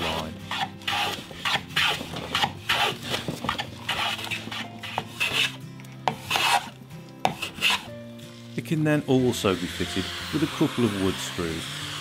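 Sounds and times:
hand plane shaving wood: 0:00.0 - 0:07.9
background music: 0:00.0 - 0:12.0.

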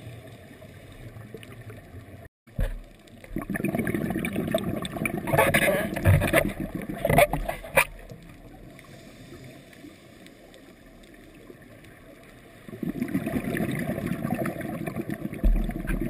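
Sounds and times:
underwater exhaled bubbles rushing: 0:01.1 - 0:08.8, 0:12.6 - 0:16.0.

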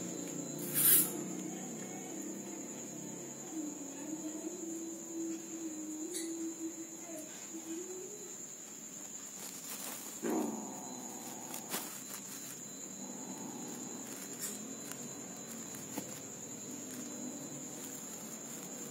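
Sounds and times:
steady high-pitched tone: 0:09.4 - 0:18.9
wild cat growling: 0:10.2 - 0:11.8.

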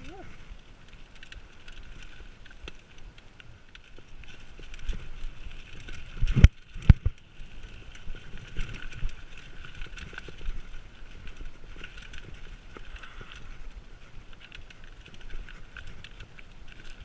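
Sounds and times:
bike rattling over bumps: 0:00.0 - 0:17.0
bike tyres on dirt and leaves: 0:00.0 - 0:17.0.

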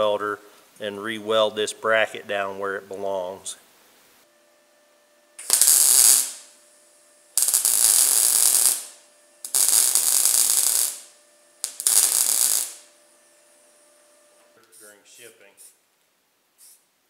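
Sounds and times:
welder arc crackling hiss: 0:05.4 - 0:15.8, 0:16.6 - 0:16.9.

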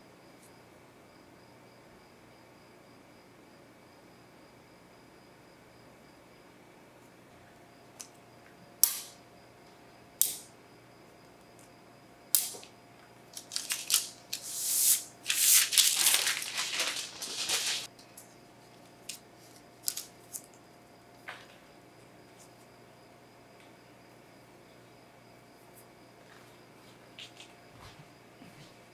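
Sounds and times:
magnets clicking on metal sheet: 0:08.8 - 0:09.2, 0:10.2 - 0:10.5, 0:12.3 - 0:12.7, 0:13.3 - 0:17.9.

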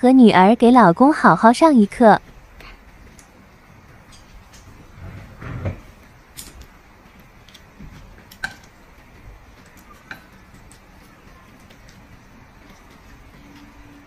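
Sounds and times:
chopsticks clicking on plates: 0:06.3 - 0:13.9.

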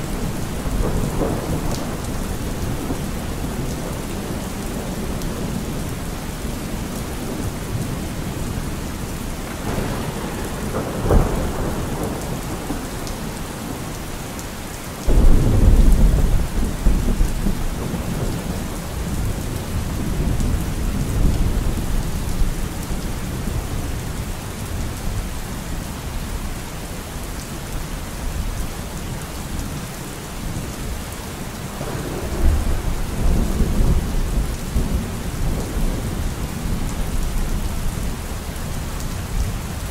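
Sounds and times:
thunder rumbling: 0:00.0 - 0:14.0, 0:15.0 - 0:23.8, 0:31.7 - 0:38.3
steady rain: 0:00.0 - 0:39.9
loud thunder clap: 0:15.1 - 0:18.4.

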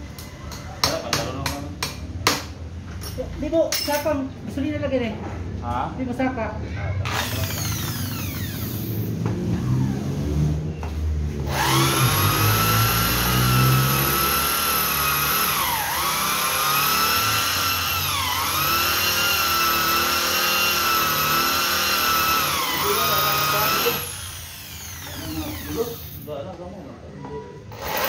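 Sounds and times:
electric drill whining: 0:07.1 - 0:09.2, 0:11.4 - 0:26.2, 0:27.7 - 0:28.0.

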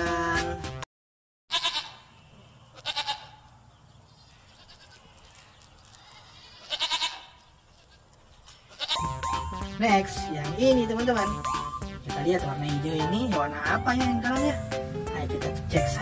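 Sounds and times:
goat kids bleating: 0:01.5 - 0:02.1, 0:02.7 - 0:03.5, 0:04.3 - 0:09.9.

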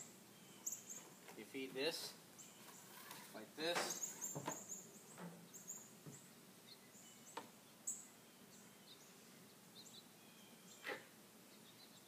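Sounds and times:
faint bird chirps: 0:00.0 - 0:01.2, 0:02.4 - 0:12.0.

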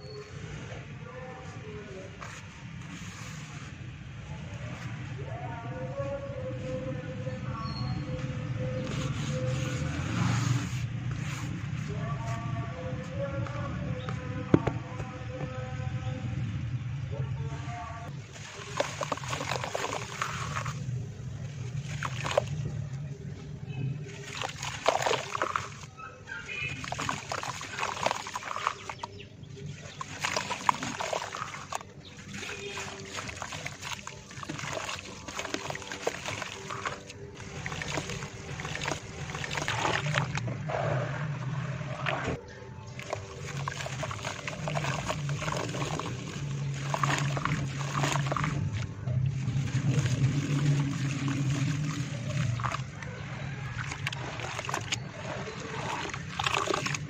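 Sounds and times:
mud dribbling into water: 0:18.1 - 0:57.0
wet mud squelching: 0:18.1 - 0:57.0.

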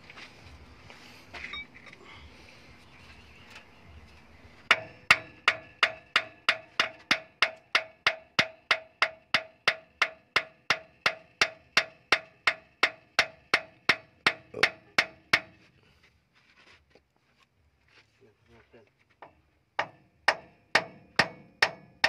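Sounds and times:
hammer striking metal: 0:04.7 - 0:15.6, 0:19.8 - 0:22.0.

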